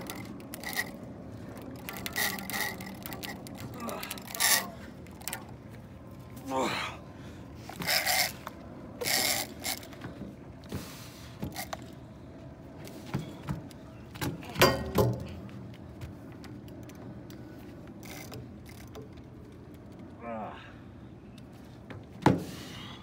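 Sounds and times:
fishing reel cranking and clicking: 0.0s - 1.0s, 1.6s - 5.4s, 7.7s - 9.9s, 18.0s - 18.9s
man grunting with effort: 6.4s - 7.0s.

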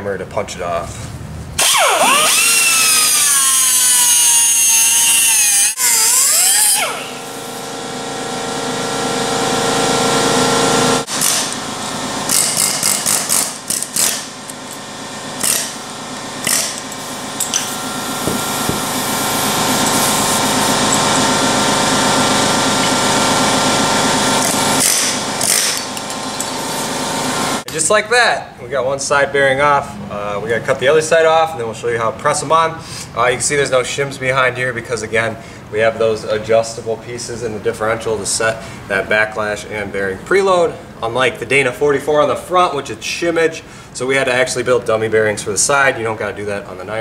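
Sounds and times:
steady mechanical hum: 0.0s - 47.0s
air tool bursts: 1.6s - 7.7s, 11.0s - 11.6s, 12.3s - 14.4s, 15.4s - 27.2s
cut-off wheel whining: 1.6s - 11.8s.

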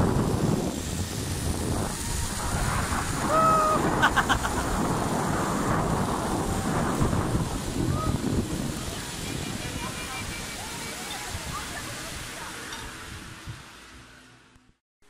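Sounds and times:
wind buffeting microphone: 0.0s - 13.8s
river rapids rushing: 0.1s - 13.9s
person crying out: 3.2s - 4.6s
person laughing: 3.3s - 4.8s.

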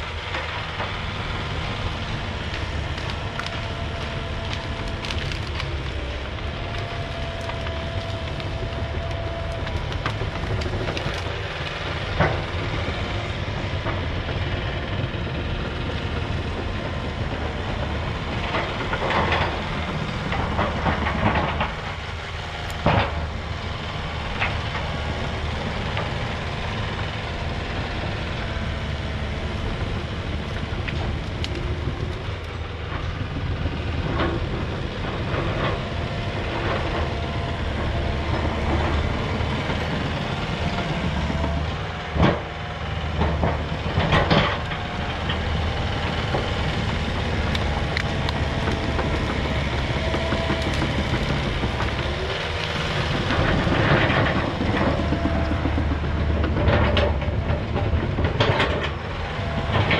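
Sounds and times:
excavator diesel engine running: 0.0s - 59.9s
branches cracking and snapping: 0.1s - 16.6s, 17.2s - 57.2s.

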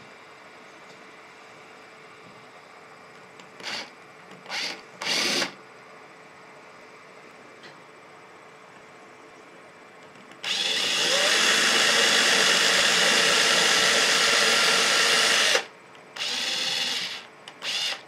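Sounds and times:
cordless drill drilling: 3.6s - 5.6s, 10.4s - 18.0s.

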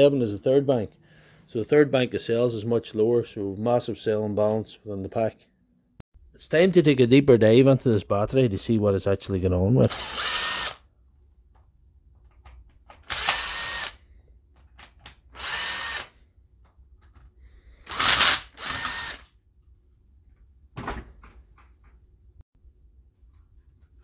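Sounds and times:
cordless drill spinning: 9.9s - 10.9s, 13.0s - 14.0s, 15.3s - 16.2s, 17.8s - 19.4s.

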